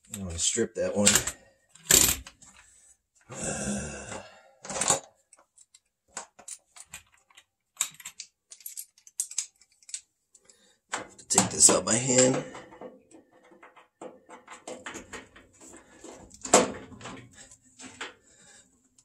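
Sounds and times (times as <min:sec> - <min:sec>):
metal clicking and clinking: 0:04.6 - 0:17.4.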